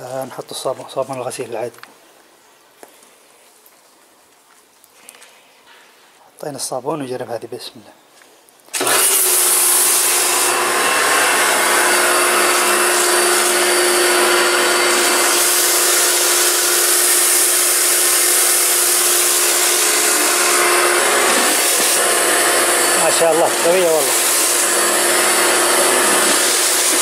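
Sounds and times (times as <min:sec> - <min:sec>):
pressure washer motor whine: 0:08.8 - 0:27.0
water jet hissing: 0:11.9 - 0:27.0.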